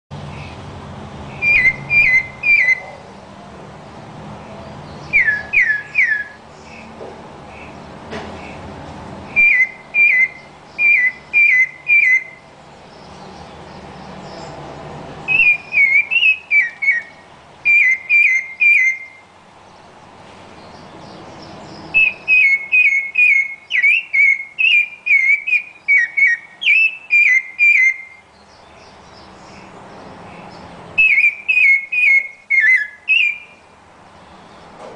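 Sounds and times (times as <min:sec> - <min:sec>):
thrush singing whistled phrases: 0:01.3 - 0:02.9, 0:05.1 - 0:06.4, 0:09.3 - 0:12.5, 0:15.3 - 0:19.2, 0:21.9 - 0:28.3, 0:31.0 - 0:33.6.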